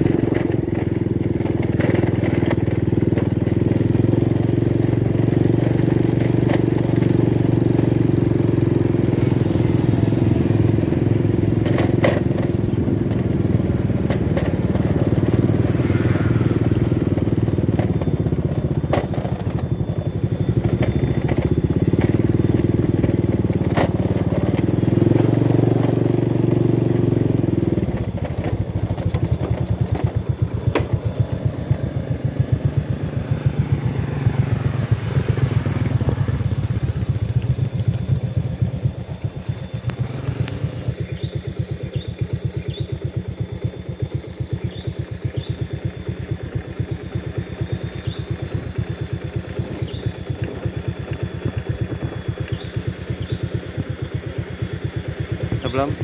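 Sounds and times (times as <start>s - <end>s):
motorcycle engine: 0.0s - 56.0s
road and wind noise: 0.0s - 56.0s.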